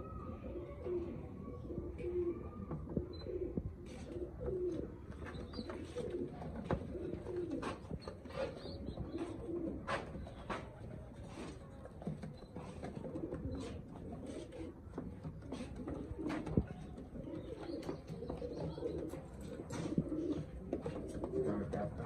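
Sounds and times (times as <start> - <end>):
pigeons cooing: 0.0 - 22.0.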